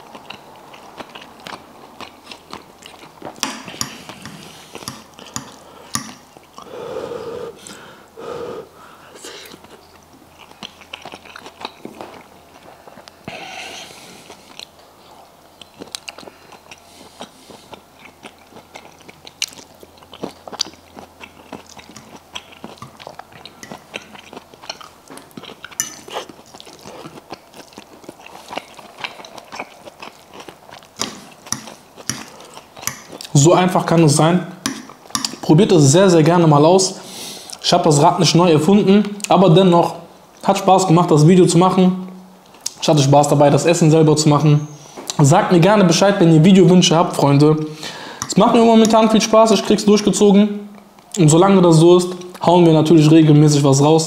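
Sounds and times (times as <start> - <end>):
person chewing: 0.0 - 6.8, 9.0 - 33.4, 34.5 - 35.5, 37.1 - 37.6, 42.1 - 42.8, 52.1 - 52.4
fork scraping and tapping plate: 3.4 - 6.2, 34.6 - 35.4.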